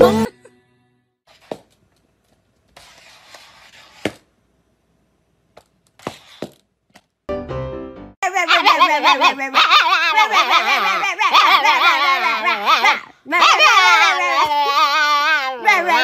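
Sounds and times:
music: 0:00.0 - 0:01.2, 0:07.3 - 0:08.2
faint scuffing: 0:01.3 - 0:04.3, 0:05.5 - 0:07.2.

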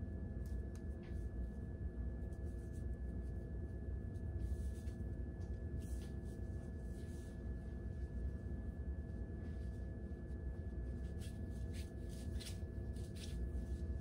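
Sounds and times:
low hum with thin whine: 0:00.0 - 0:14.0
hair rustling while braided: 0:10.8 - 0:14.0.

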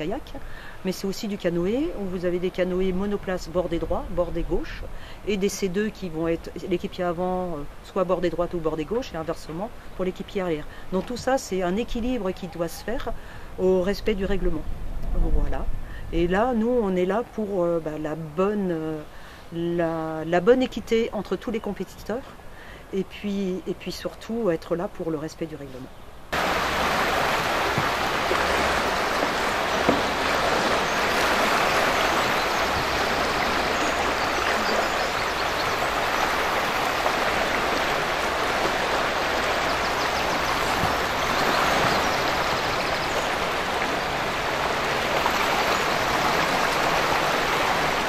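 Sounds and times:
river water rushing: 0:26.3 - 0:48.0.

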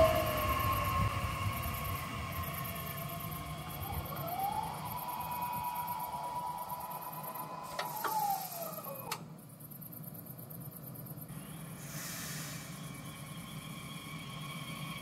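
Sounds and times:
barrier motor whine: 0:00.0 - 0:09.3.

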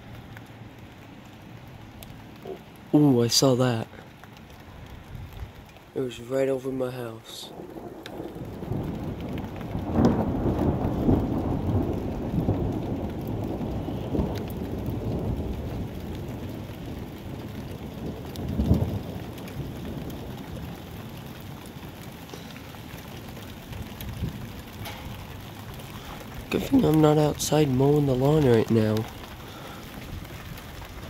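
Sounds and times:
rain falling: 0:00.0 - 0:31.0
thunder rumbling: 0:07.5 - 0:31.0.

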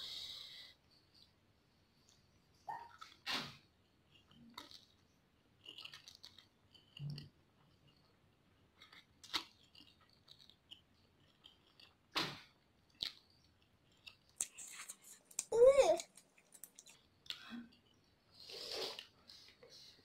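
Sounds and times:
person slurping noodles: 0:18.4 - 0:19.1.

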